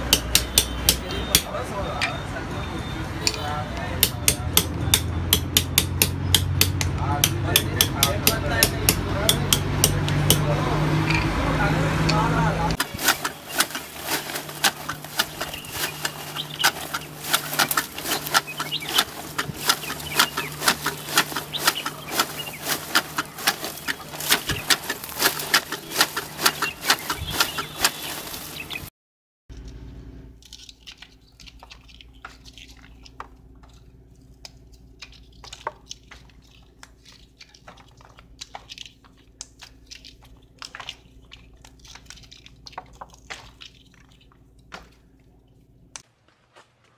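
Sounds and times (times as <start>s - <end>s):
leaves snapping and rustling: 12.1s - 28.9s, 29.5s - 45.2s.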